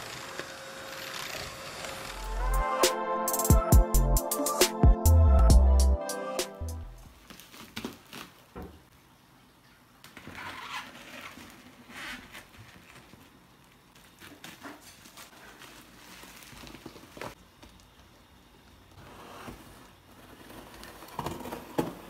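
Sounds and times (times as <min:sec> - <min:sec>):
bubble wrap crinkling: 0:07.0 - 0:08.9, 0:10.1 - 0:22.0.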